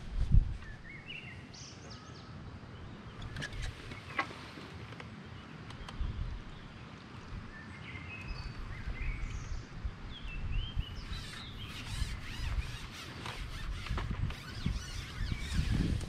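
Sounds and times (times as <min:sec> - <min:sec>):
small birds chirping: 0:05.2 - 0:16.0.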